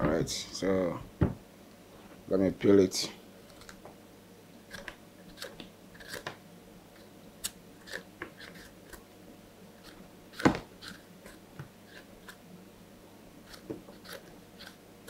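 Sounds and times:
knife cutting yam skin: 4.7 - 6.3, 13.4 - 14.8.

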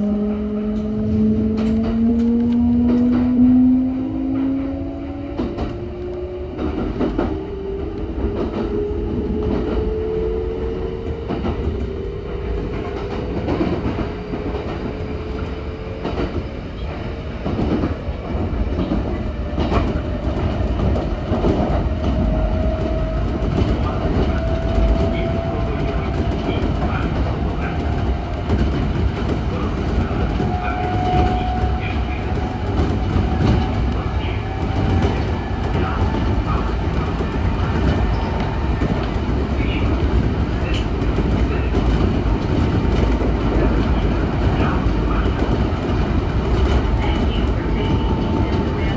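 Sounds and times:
wheels rumbling on rails: 0.0 - 48.9
wheels clacking at rail joints: 15.8 - 48.9.

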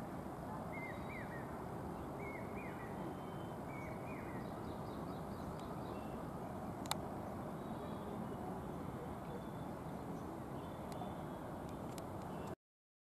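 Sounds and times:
low outdoor rush: 0.0 - 12.6
faint high chirps: 0.5 - 6.5.

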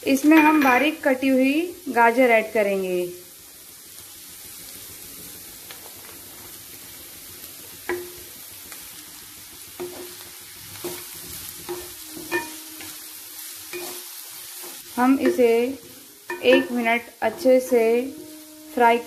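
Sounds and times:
cabbage sizzling in oil: 0.0 - 19.0
spatula knocking and scraping pan: 9.8 - 10.2, 10.8 - 13.0, 13.7 - 18.8.

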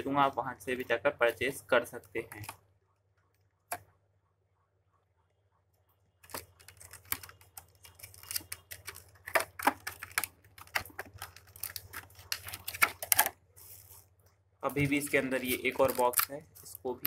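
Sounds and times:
plastic packaging crinkling: 6.2 - 14.1, 14.8 - 17.0.

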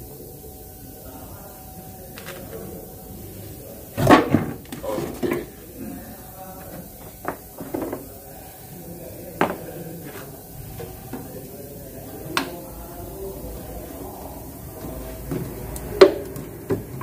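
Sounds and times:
containers and tools knocking: 7.0 - 8.1, 9.4 - 9.7.

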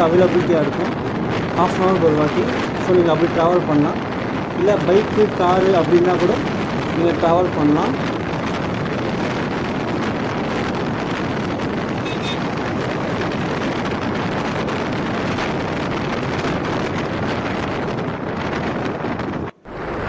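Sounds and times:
road noise: 0.0 - 20.0
wind rushing on microphone: 0.0 - 20.0.

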